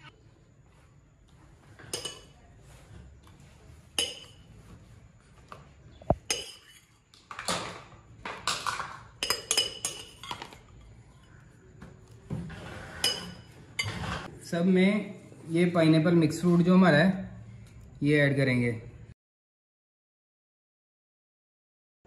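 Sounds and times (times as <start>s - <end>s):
spoon clinking against glass bowl: 1.8s - 2.4s, 3.9s - 4.5s, 6.2s - 7.0s, 9.2s - 10.5s, 13.0s - 13.9s.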